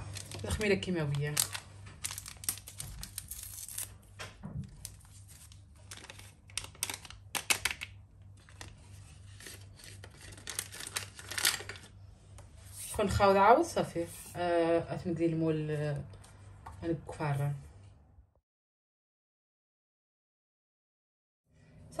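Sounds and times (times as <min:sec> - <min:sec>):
paper sachets tearing and crinkling: 0:00.0 - 0:04.1, 0:04.7 - 0:11.9.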